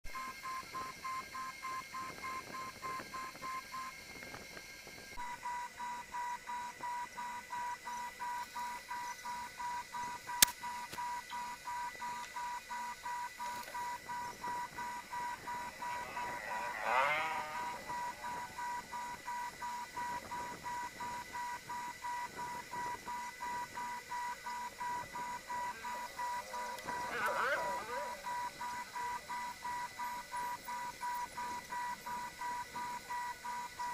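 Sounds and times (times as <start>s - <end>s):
high electronic beeping: 5.2s - 33.9s
sharp click: 10.3s - 11.4s.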